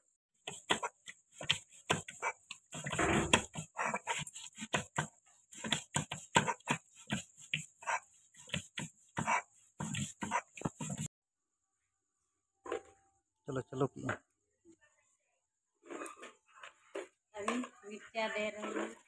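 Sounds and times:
stone roller grinding on stone: 0:00.5 - 0:11.1.

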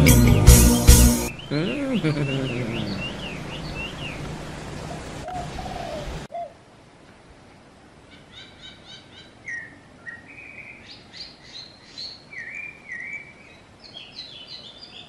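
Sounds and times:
songbirds singing: 0:00.0 - 0:06.2, 0:08.1 - 0:15.0
faint outdoor hush: 0:01.2 - 0:08.6.

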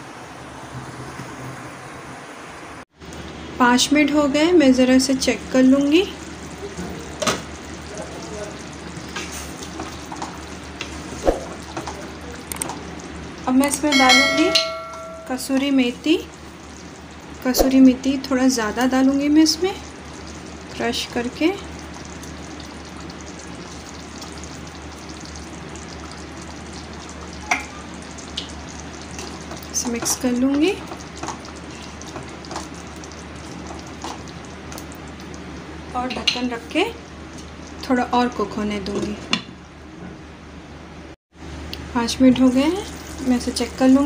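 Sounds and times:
gravy sizzling in a pan: 0:03.1 - 0:39.9, 0:41.4 - 0:44.0
spatula stirring: 0:29.0 - 0:34.8.

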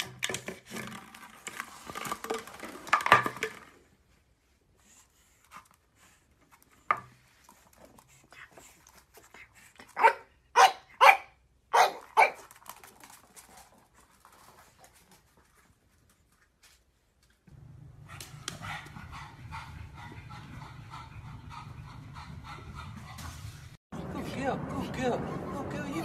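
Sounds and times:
puppy barking: 0:10.0 - 0:12.4.

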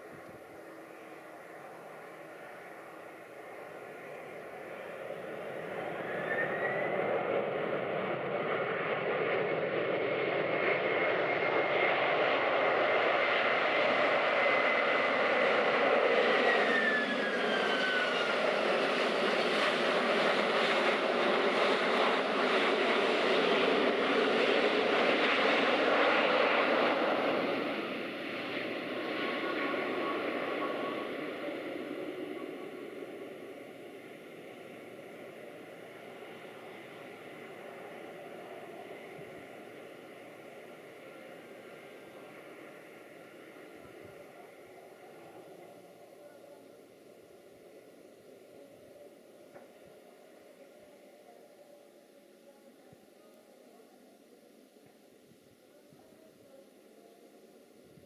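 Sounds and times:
jet engine whine: 0:00.0 - 0:58.0
jet engines roaring: 0:00.1 - 0:46.1.

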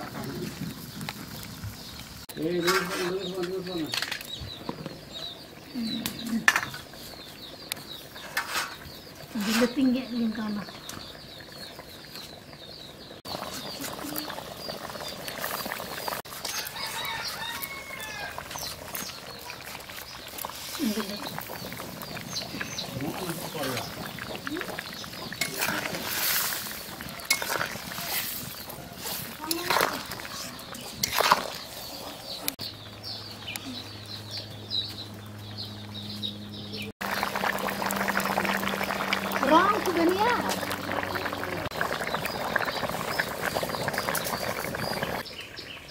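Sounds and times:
birds chirping: 0:00.0 - 0:45.9
ladle scraping metal pot: 0:02.5 - 0:04.2, 0:08.2 - 0:09.9, 0:21.4 - 0:32.2
curry boiling in a pan: 0:03.3 - 0:33.4, 0:37.0 - 0:45.9.

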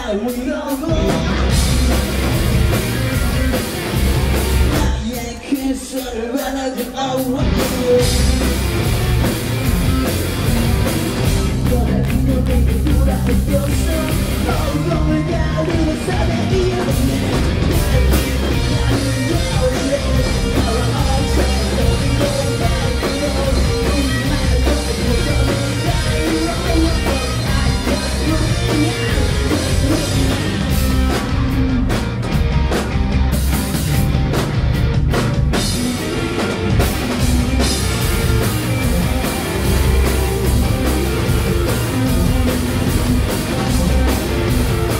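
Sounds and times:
distorted electric guitars: 0:00.0 - 0:44.9
drum kit playing: 0:00.0 - 0:44.9.

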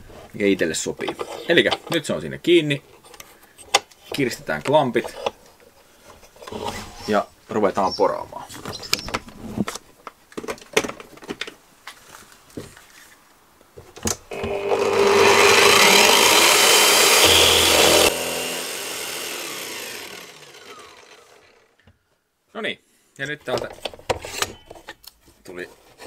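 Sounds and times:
drill press cutting wood: 0:14.3 - 0:21.7.

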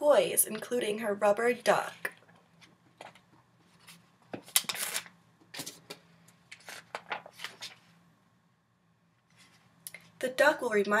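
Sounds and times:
book pages rustling: 0:02.6 - 0:08.0, 0:09.3 - 0:10.2.

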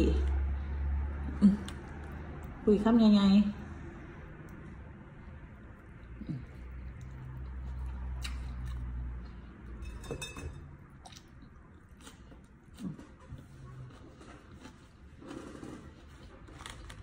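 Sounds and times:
close-up chewing: 0:01.2 - 0:02.6, 0:03.9 - 0:09.8, 0:10.8 - 0:17.0.

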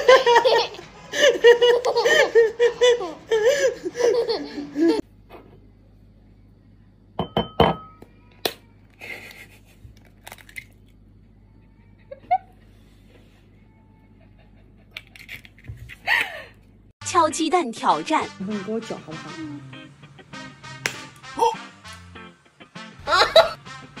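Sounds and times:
girl laughing and giggling: 0:00.0 - 0:05.0, 0:11.6 - 0:12.7, 0:23.0 - 0:23.6
man laughing: 0:14.1 - 0:15.0, 0:23.0 - 0:23.6.

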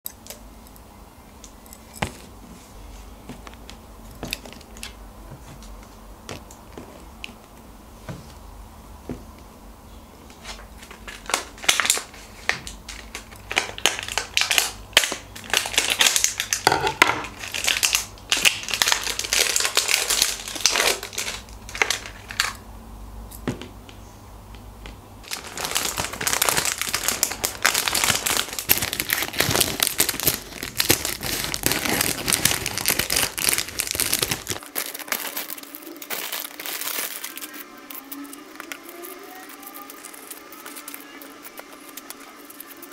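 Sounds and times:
plastic packaging crinkling: 0:10.4 - 0:22.6, 0:25.2 - 0:42.9.

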